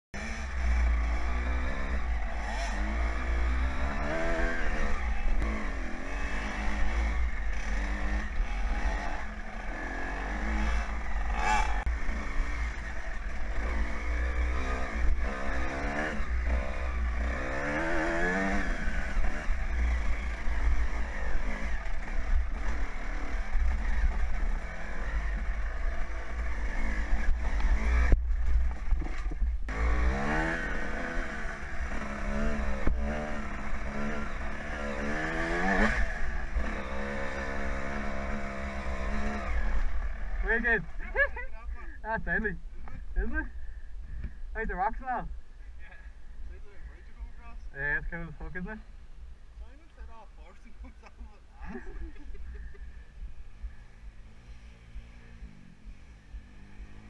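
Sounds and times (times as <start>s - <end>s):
dirt bike engine revving: 0.2s - 43.8s, 51.6s - 57.0s.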